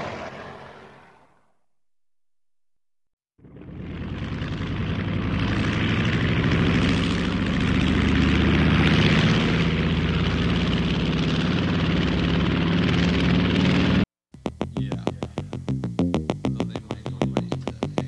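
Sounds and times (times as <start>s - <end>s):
propeller plane engine: 3.3s - 14.6s.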